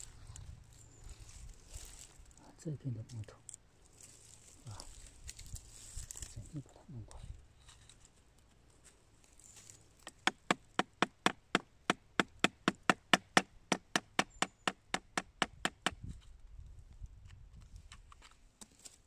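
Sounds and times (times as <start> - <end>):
hammer striking chisel into wood: 10.0 - 16.0.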